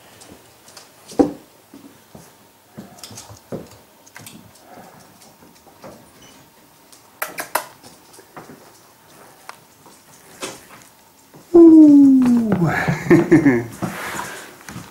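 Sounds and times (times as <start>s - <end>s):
puppy paws tapping on hard floor: 0.2s - 11.5s.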